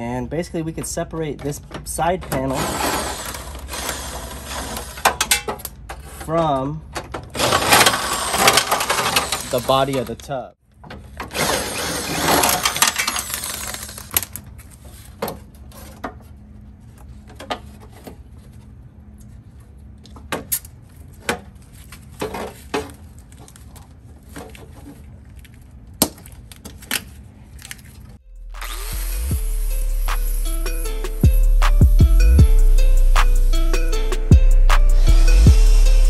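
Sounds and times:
sheet metal scraping and crunching: 2.2s - 6.6s, 7.2s - 10.3s.

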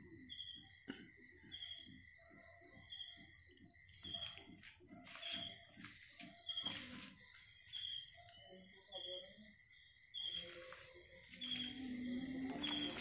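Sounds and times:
cricket trill: 0.0s - 13.0s
short insect chirp: 2.9s - 13.0s.

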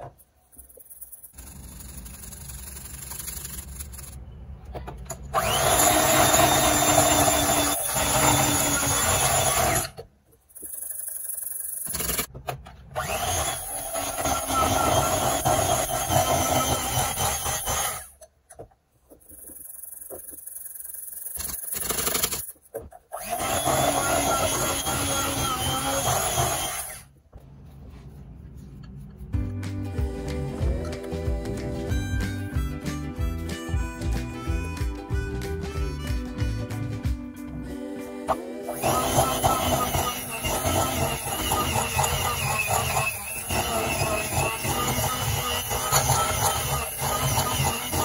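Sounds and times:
electric hand mixer whirring: 5.4s - 9.8s, 23.2s - 27.0s, 38.6s - 48.0s.

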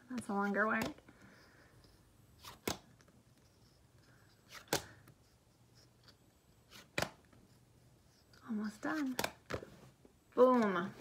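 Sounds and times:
flash card snaps: 2.4s - 2.9s, 4.5s - 5.0s, 6.7s - 7.2s, 9.1s - 9.6s.

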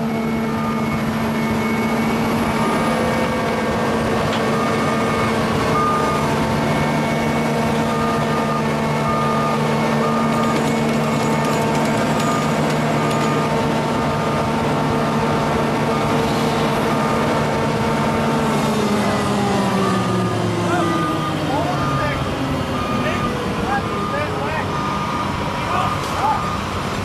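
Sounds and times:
diesel engine running: 0.0s - 27.0s
warning beeper: 19.3s - 26.8s.

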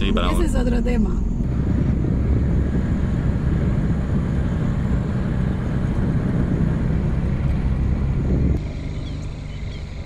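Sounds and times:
van engine and tyres rumbling: 0.0s - 10.0s.

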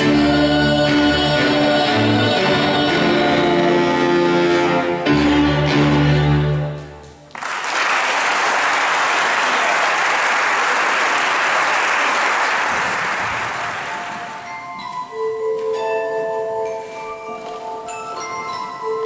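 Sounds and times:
audience applauding: 7.3s - 14.4s.

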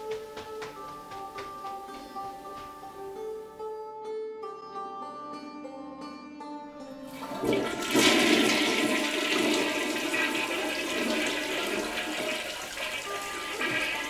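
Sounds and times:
toilet flushing: 7.1s - 14.0s.

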